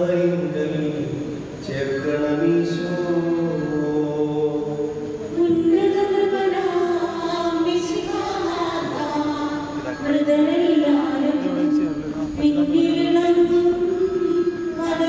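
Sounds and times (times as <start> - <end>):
voices singing a slow hymn: 0.0 - 15.0.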